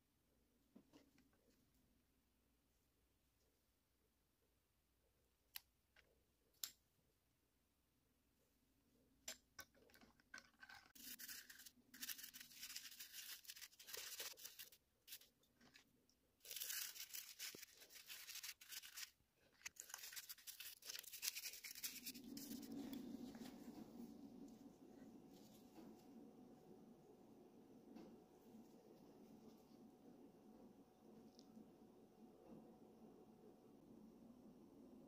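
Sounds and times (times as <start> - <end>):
toothbrush scrubbing plastic part: 9.9 - 22.7.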